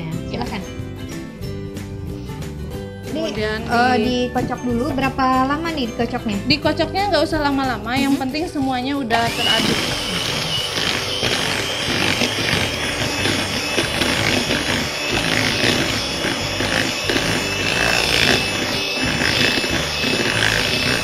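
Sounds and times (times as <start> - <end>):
electric hand mixer running: 9.1 - 21.0.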